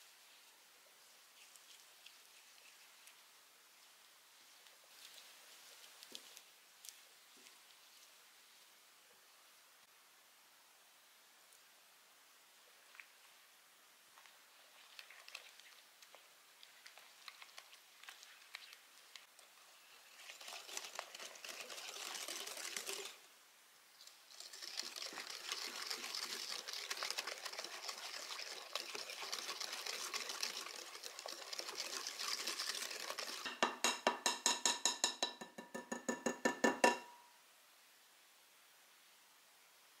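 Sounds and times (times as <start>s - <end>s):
whisk beating batter: 20.0s - 23.2s, 24.3s - 35.1s
whisk clinking against glass bowl: 33.5s - 37.1s.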